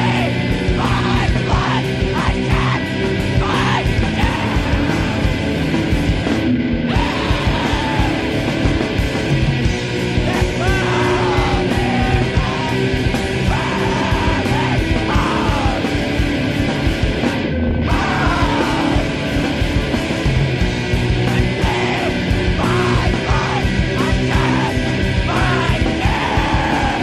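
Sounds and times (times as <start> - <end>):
shouted vocals: 0.0 - 5.4, 6.9 - 8.4, 10.3 - 16.0, 17.8 - 19.2, 21.2 - 27.0
drums: 0.0 - 27.0
heavy rock song: 0.0 - 27.0.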